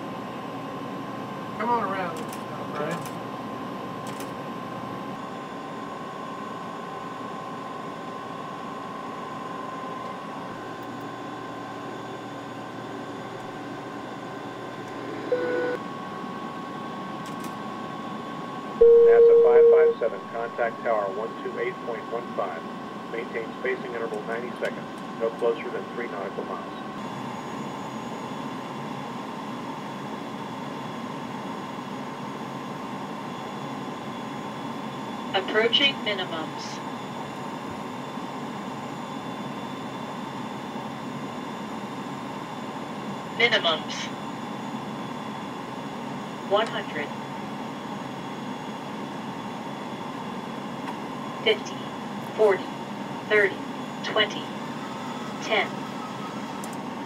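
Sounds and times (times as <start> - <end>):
airliner cockpit hum: 0.0 - 57.0
short electronic beep: 18.8 - 20.0
faint high steady tone: 18.8 - 20.7
high whine: 18.8 - 24.0.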